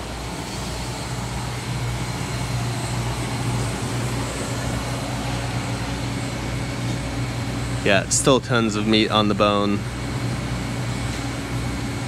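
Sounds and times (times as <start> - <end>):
machinery drone with hiss: 0.0 - 12.0.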